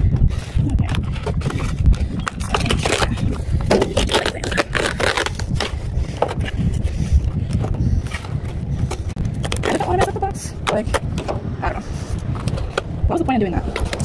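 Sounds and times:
steady low rumble: 0.0 - 14.0
cardboard and plastic crinkling: 0.9 - 5.8.

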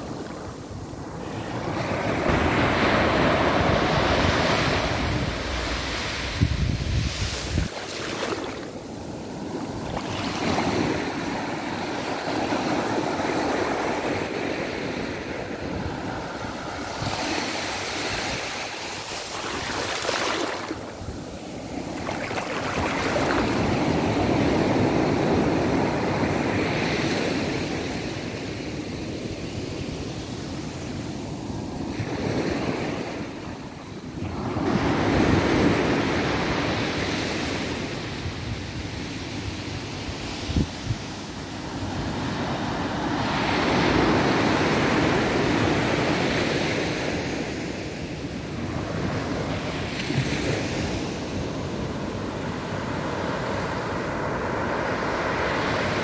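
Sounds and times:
small waves washing on beach: 0.0 - 56.0.

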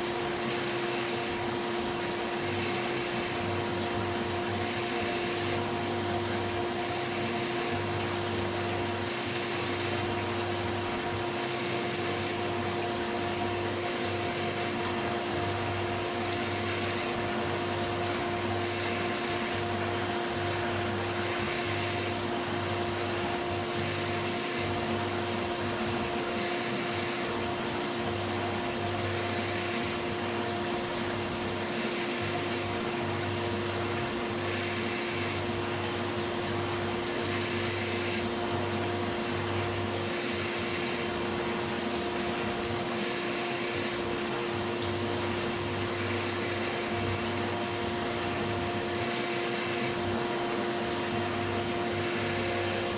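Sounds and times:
milling spindle humming: 0.0 - 52.9.

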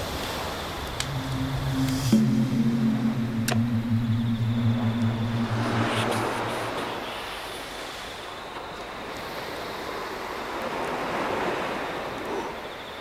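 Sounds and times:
steady rushing noise: 1.0 - 7.7.

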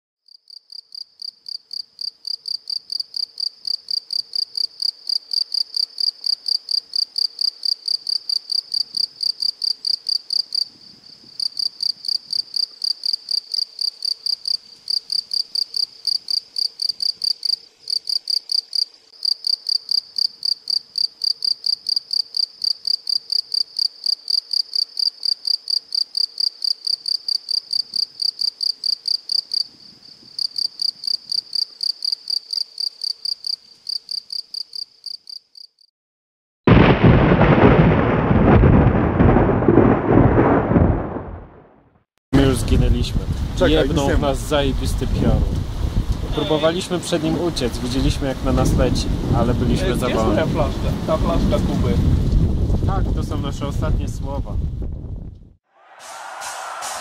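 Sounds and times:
cricket chirping: 0.3 - 35.9.

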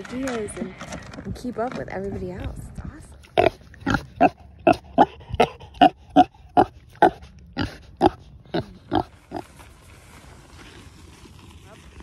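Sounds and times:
pig grunting: 3.3 - 9.4.

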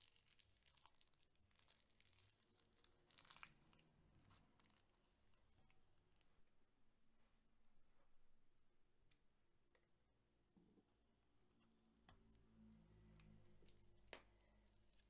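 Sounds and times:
faint crinkling and crackling: 0.0 - 6.6, 10.6 - 15.0.

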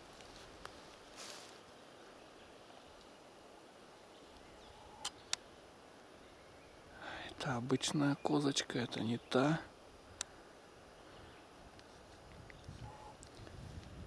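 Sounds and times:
brief rustle: 0.1 - 1.6.

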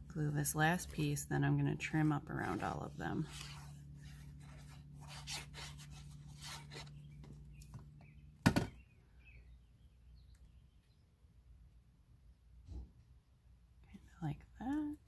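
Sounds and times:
cardstock rubbing and rustling: 1.8 - 7.4.

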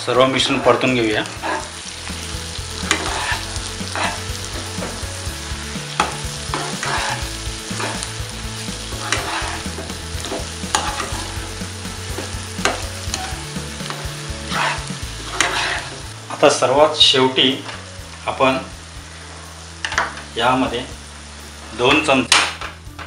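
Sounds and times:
food sizzling: 0.0 - 23.0
spatula scraping metal pan: 0.4 - 1.9, 2.7 - 5.1, 5.9 - 8.1, 8.9 - 11.4, 12.6 - 16.1.

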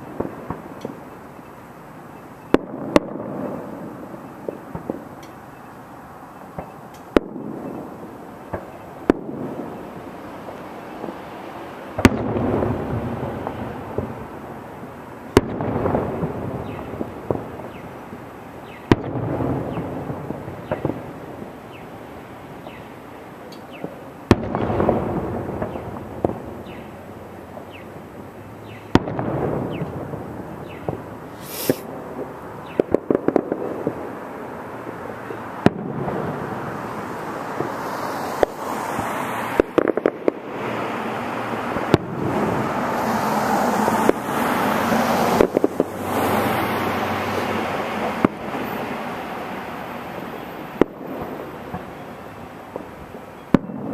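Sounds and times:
firework crackling: 0.0 - 53.9
distant firework booms: 12.0 - 14.4, 15.4 - 21.6, 23.8 - 27.0, 28.7 - 34.1.

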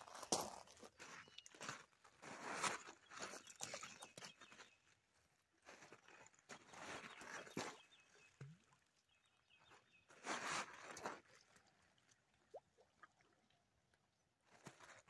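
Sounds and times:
feet crunching on gravel: 0.0 - 3.4.

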